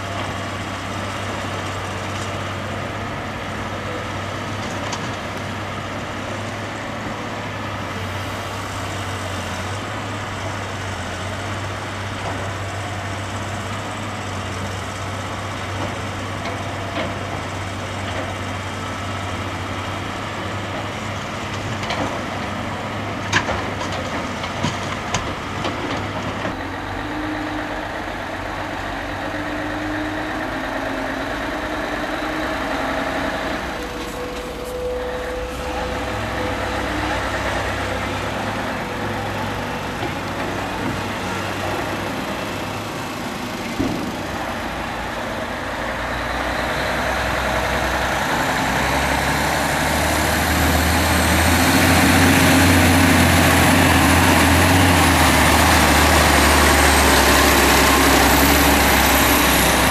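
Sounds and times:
heavy diesel engines running: 0.0 - 59.9
truck engine running: 24.1 - 59.9.

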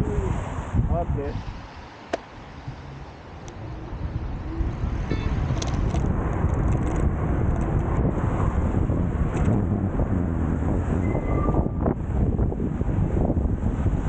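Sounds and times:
wind and road noise: 0.0 - 14.0.

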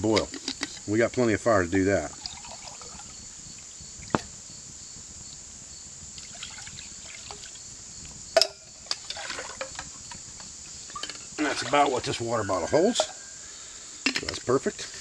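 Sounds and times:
water pouring into metal cup: 2.0 - 3.2, 6.2 - 7.6, 9.0 - 9.8.

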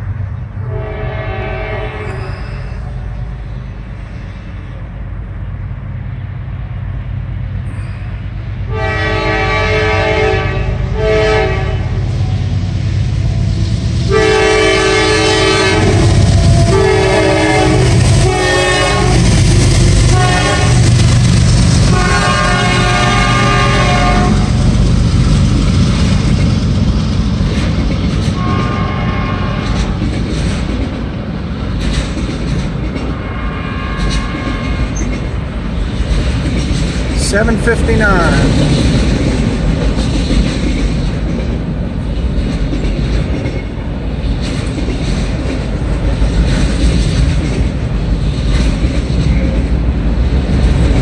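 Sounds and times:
freight cars rumbling on rails: 0.0 - 51.0
locomotive engine rumble: 0.0 - 51.0
locomotive air horn blasts: 0.6 - 2.9, 8.7 - 12.0, 14.1 - 19.2, 20.1 - 20.9, 21.9 - 24.6, 28.4 - 29.8, 33.2 - 34.9.

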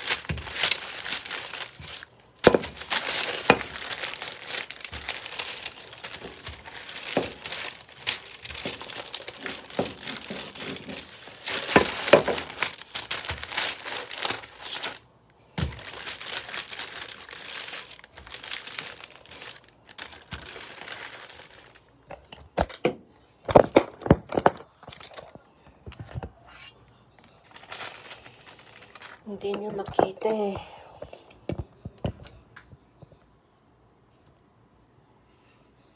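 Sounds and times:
paper crinkling under rolling pin: 0.0 - 15.0, 15.6 - 22.8, 27.2 - 30.1.

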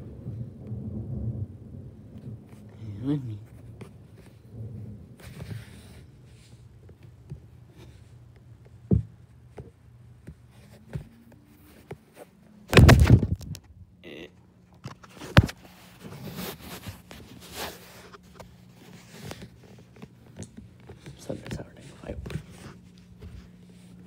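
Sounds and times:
heavy thud: 12.7 - 13.7.

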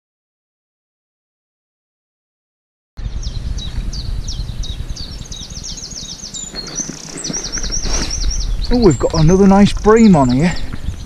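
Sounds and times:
songbird singing: 3.0 - 11.0
steady low rumble: 3.0 - 11.0.

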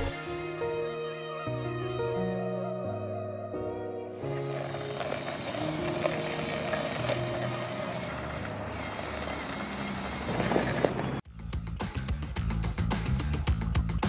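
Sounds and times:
background music: 0.0 - 9.4, 11.3 - 14.0
gritty scraping noise: 4.4 - 11.2.

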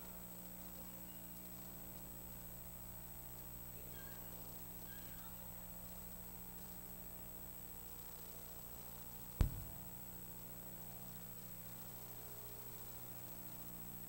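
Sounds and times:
low electrical hum: 0.0 - 14.0
sharp ringing thump: 9.4 - 10.0.

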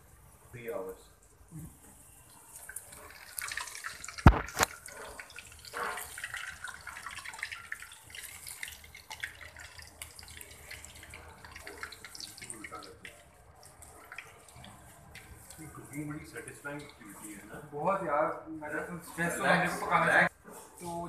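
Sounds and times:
oil sizzling: 2.0 - 17.5.

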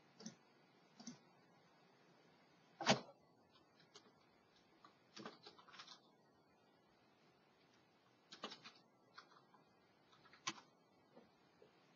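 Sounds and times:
computer keyboard typing: 3.5 - 6.1, 8.3 - 10.7.

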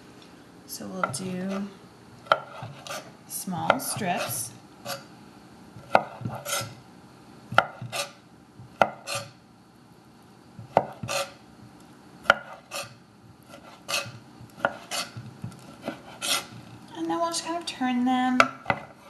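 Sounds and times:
knife scraping on board: 2.3 - 5.1, 5.8 - 6.8, 7.6 - 8.2, 8.8 - 9.4, 10.7 - 11.4, 12.3 - 16.7.

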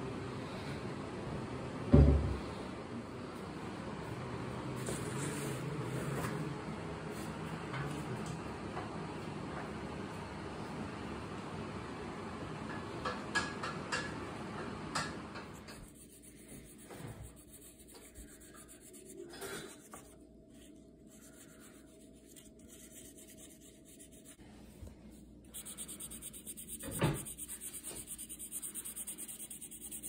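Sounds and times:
knock: 1.9 - 2.4
oil pastel scraping paper: 15.8 - 24.4, 25.5 - 30.0
marker scratching on paper: 25.5 - 30.0.

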